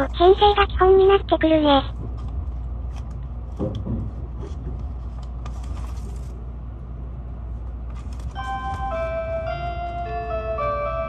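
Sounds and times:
train rumbling: 0.0s - 11.0s
bell-like chime melody: 8.4s - 11.0s.

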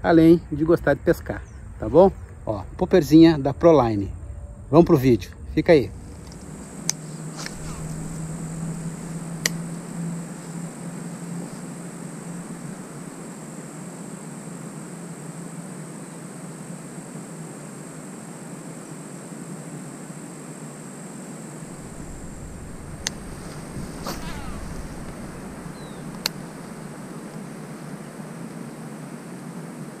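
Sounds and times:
faint high whine: 0.0s - 30.0s
outdoor background hiss: 0.0s - 30.0s
sharp clicks: 6.2s - 7.6s, 9.4s - 9.7s, 23.0s - 23.2s, 25.0s - 26.5s.

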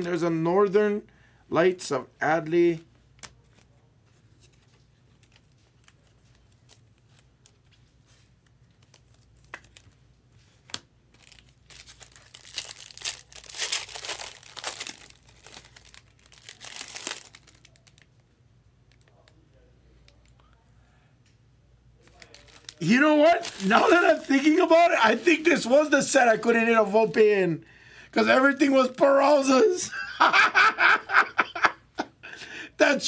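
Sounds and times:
wrapper tearing and crinkling: 11.1s - 18.2s, 22.0s - 25.8s.

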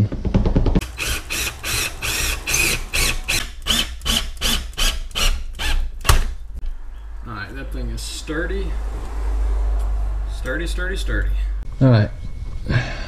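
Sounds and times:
power driver driving bolts: 0.8s - 6.4s.

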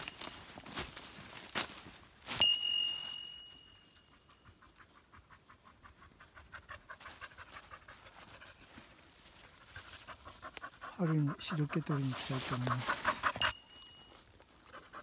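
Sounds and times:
footsteps in dry leaves: 0.0s - 4.1s, 7.0s - 15.0s
small bell ringing: 2.3s - 4.3s, 13.4s - 14.2s
dog panting: 4.1s - 13.8s, 14.7s - 15.0s.

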